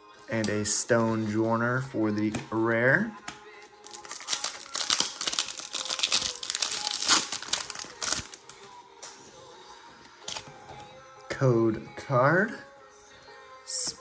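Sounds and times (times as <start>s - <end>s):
foil wrapper crinkling and tearing: 3.8s - 8.6s.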